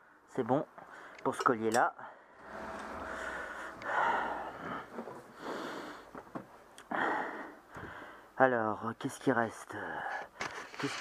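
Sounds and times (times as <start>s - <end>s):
person breathing heavily: 3.1s - 6.2s, 6.8s - 8.3s.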